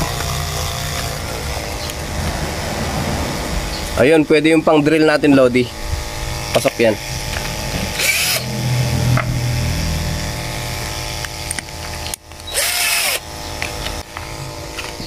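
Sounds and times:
electric drill running: 0.0s - 2.1s, 5.7s - 15.0s.

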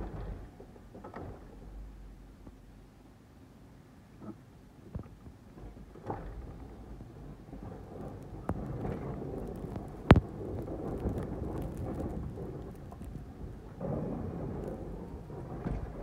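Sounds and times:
snow plow rumbling: 0.0s - 2.2s, 5.5s - 16.0s.

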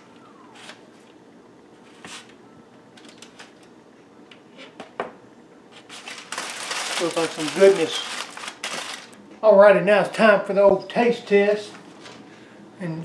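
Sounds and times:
aluminium foil crinkling: 3.0s - 3.7s, 5.8s - 9.2s.

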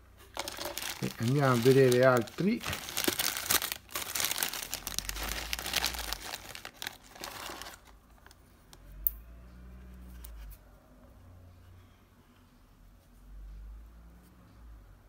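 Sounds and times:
plastic bag crinkling: 0.2s - 8.4s.

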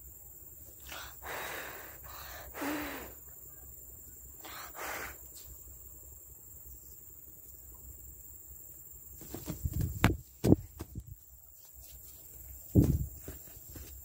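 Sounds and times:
person breathing close to microphone: 0.8s - 3.2s.

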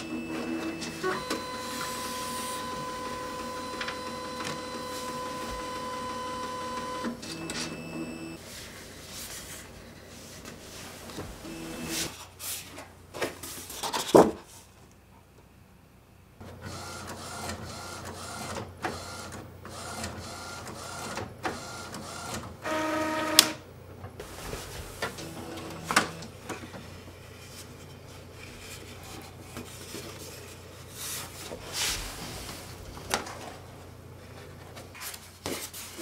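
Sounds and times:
printer motors running: 0.0s - 8.4s, 25.0s - 26.8s.

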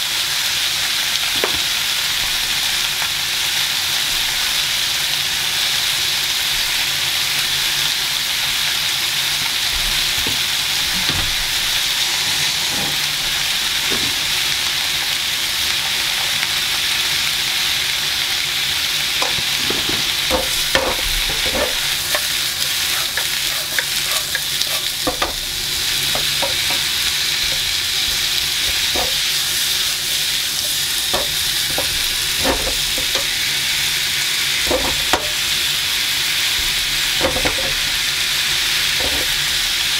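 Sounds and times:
vegetables sizzling in a pan: 0.0s - 39.9s
wooden spatula scraping a pan: 12.0s - 14.2s, 19.2s - 33.4s, 34.6s - 35.4s, 39.0s - 39.7s.

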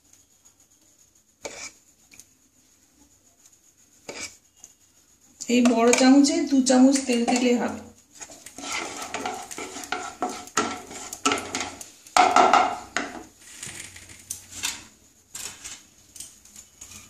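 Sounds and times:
wooden spatula scraping pan: 1.4s - 1.8s, 4.0s - 4.4s, 5.5s - 14.9s.

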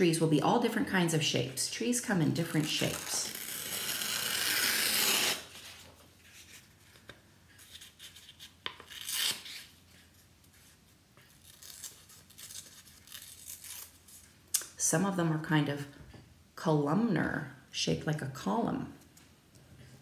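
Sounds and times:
paper tearing: 2.5s - 5.9s, 7.7s - 9.7s, 11.4s - 14.2s.

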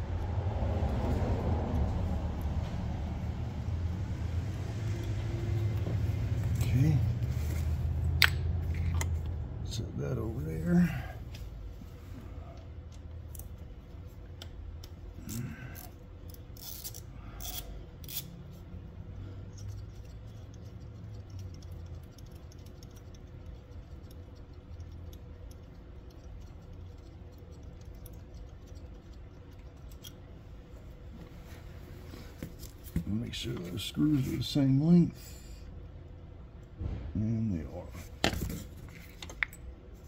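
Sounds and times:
low background hum: 0.0s - 40.0s.

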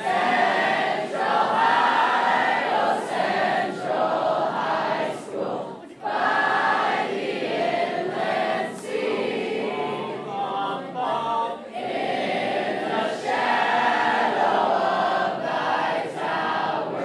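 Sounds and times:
group of teenagers singing: 0.0s - 17.0s.

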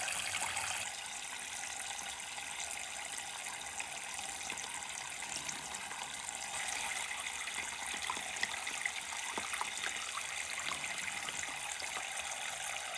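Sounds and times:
small splashes and drips: 0.0s - 12.9s
thin stream of running water: 0.0s - 12.9s.

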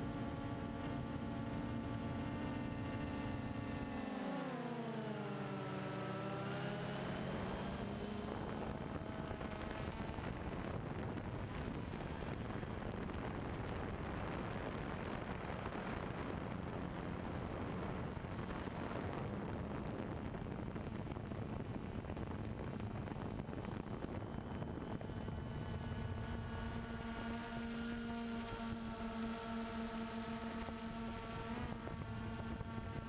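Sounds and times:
drone propellers buzzing: 5.2s - 33.0s
steady rushing noise: 7.0s - 33.0s.

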